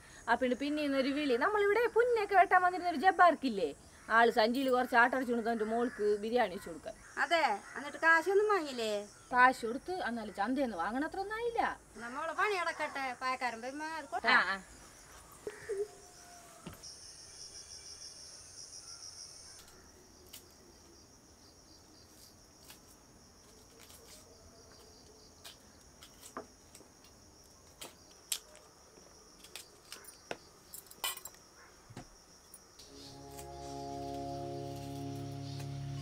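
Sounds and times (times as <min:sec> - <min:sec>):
crickets chirring: 0:00.0 - 0:36.0
music: 0:32.9 - 0:36.0.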